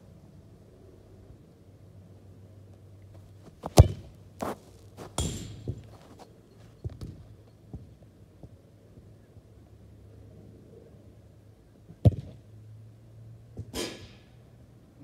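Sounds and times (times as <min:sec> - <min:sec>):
football kicked on turf: 0:03.4 - 0:06.2
ball bouncing knocks: 0:03.6 - 0:06.0.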